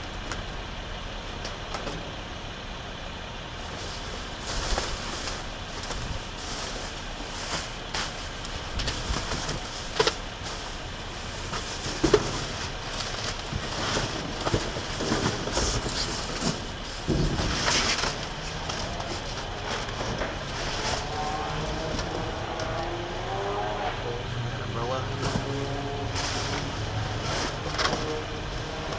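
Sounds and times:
plastic and bubble wrap crinkling: 3.7 - 21.1.

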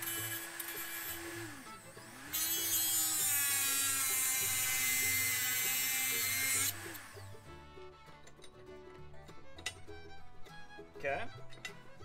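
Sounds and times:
rotary tool cutting steel: 0.0 - 7.5.

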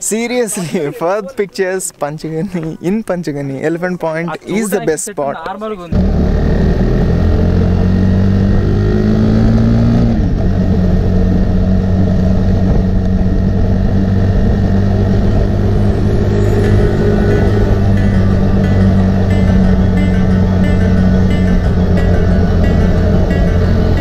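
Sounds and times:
vehicle engine running: 6.0 - 24.0.

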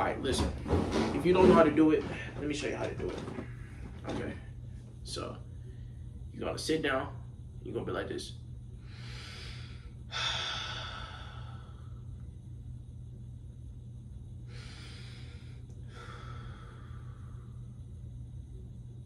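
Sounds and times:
man breathing slowly and deeply: 8.8 - 12.3, 14.4 - 17.9.

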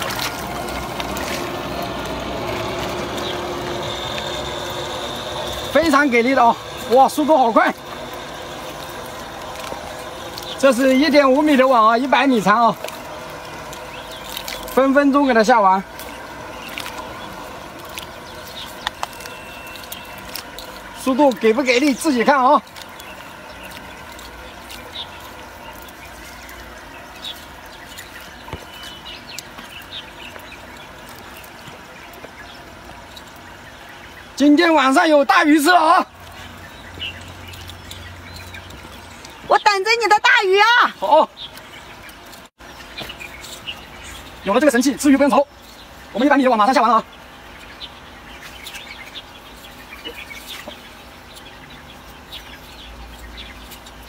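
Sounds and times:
steady low hum: 0.0 - 34.4
birds chirping: 0.0 - 54.0.

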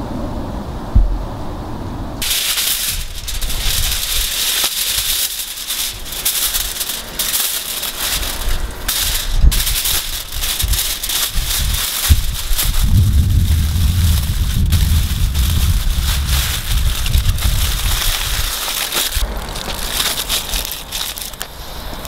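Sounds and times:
aluminium foil crinkling: 2.2 - 22.0.

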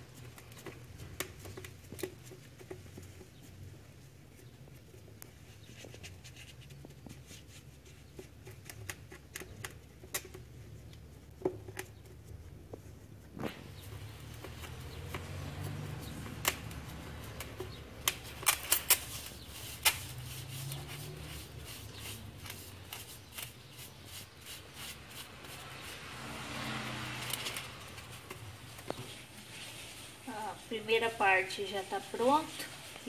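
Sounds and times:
hands smoothing wet cement: 11.8 - 33.0.

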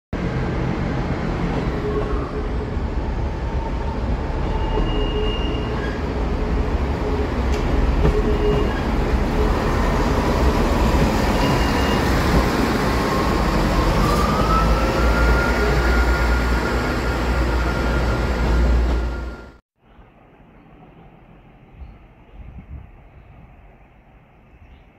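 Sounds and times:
train engine and wheel rumble: 0.2 - 24.9
train whine rising in pitch: 8.1 - 19.6.

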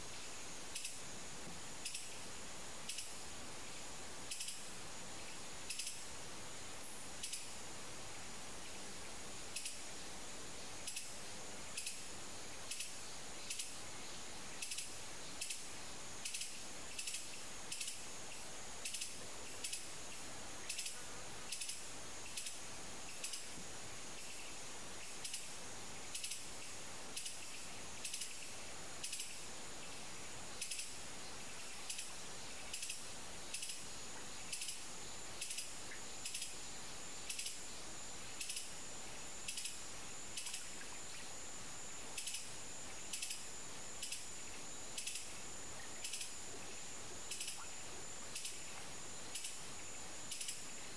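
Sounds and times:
insects chirping: 0.0 - 50.9.

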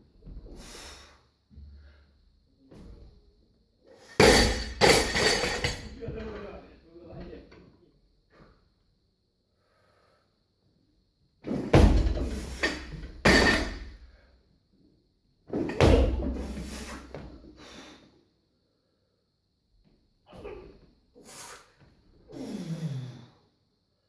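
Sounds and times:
barbell plates clanging: 4.2 - 6.0, 12.3 - 13.9
heavy thuds on lifting platform: 11.5 - 14.0, 15.5 - 17.4.

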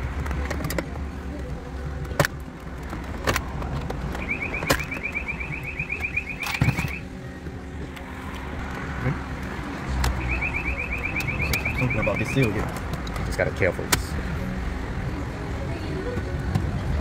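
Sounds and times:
rapid high electronic beeping: 4.2 - 7.0, 10.2 - 12.6.

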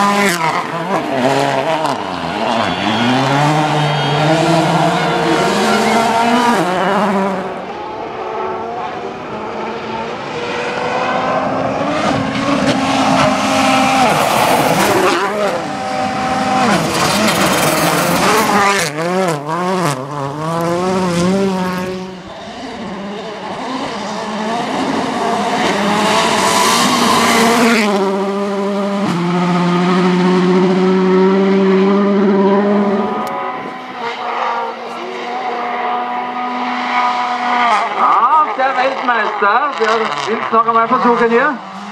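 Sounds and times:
rally car engine revving: 0.0 - 41.9.

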